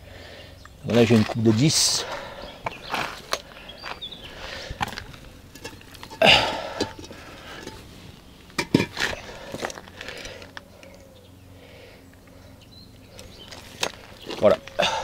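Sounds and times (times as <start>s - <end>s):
concrete block scraping: 1.1s - 10.5s
concrete blocks knocking: 8.6s - 9.2s.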